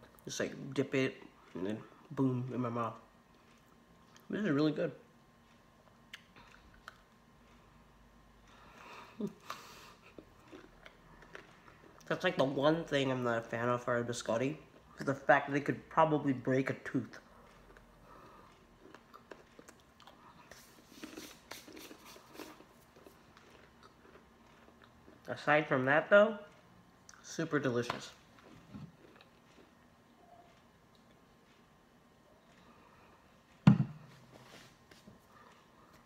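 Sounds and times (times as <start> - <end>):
biscuit crunching while chewed: 9.5 - 12.4, 17.1 - 25.3, 28.3 - 29.9.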